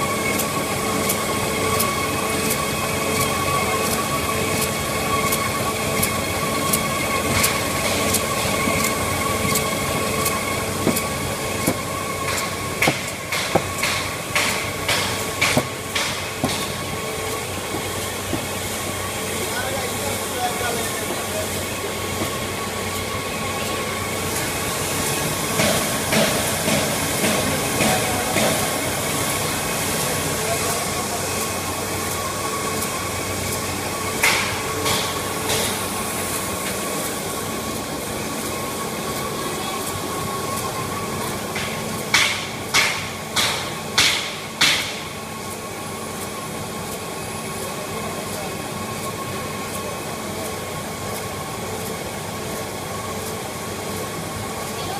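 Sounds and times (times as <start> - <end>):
machine humming: 0.0 - 54.9
machine clattering: 3.2 - 23.2
sharp mechanical clacks: 4.6 - 18.6
sharp knocks: 10.8 - 16.8.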